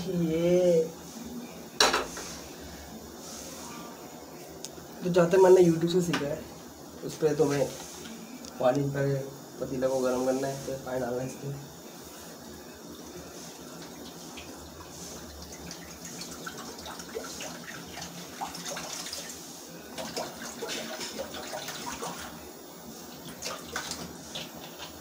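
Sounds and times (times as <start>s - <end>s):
water pouring into pan: 12.9s - 25.0s.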